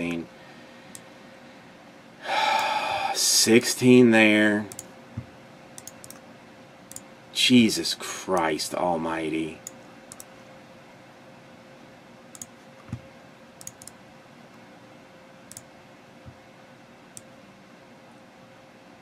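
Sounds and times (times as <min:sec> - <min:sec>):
faint steady hum: 0:00.0 - 0:19.0
computer mouse clicks: 0:05.8 - 0:06.2, 0:06.9 - 0:07.1, 0:09.6 - 0:10.3, 0:12.3 - 0:12.6, 0:13.6 - 0:14.0, 0:15.5 - 0:15.7.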